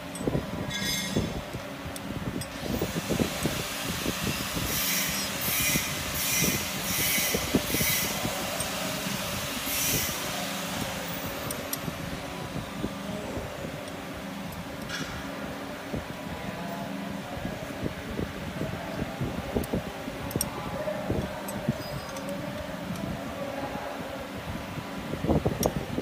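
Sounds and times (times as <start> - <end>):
steady hum: 0.0 - 26.0
metal knocking and scraping: 0.1 - 1.4.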